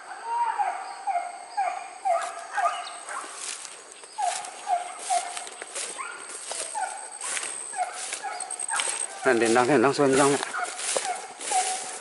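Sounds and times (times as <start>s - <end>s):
dogs yelping: 0.2s - 12.0s
sharp crackles: 3.1s - 12.0s.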